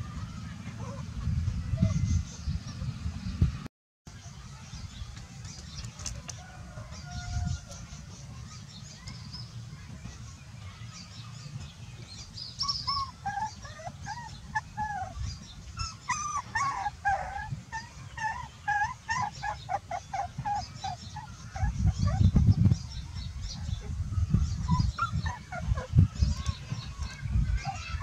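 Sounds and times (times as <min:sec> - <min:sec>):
puppy whimpering: 0:12.6 - 0:22.4, 0:24.6 - 0:25.9.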